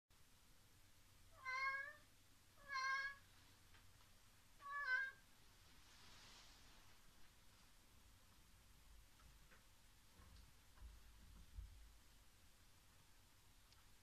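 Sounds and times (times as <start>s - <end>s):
cat meowing: 1.3s - 3.3s, 4.6s - 5.2s.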